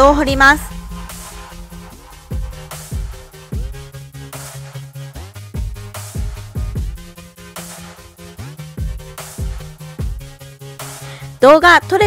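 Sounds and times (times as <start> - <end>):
stepping bass line: 0.0 - 4.8, 5.5 - 7.2, 8.8 - 10.5
bright cymbal-like hits: 0.1 - 5.1
kick drum hits: 0.2 - 4.0.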